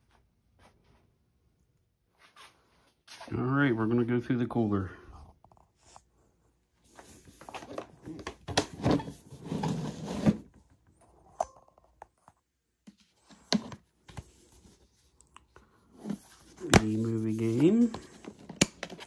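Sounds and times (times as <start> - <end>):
cables rustling: 12.9 - 19.0.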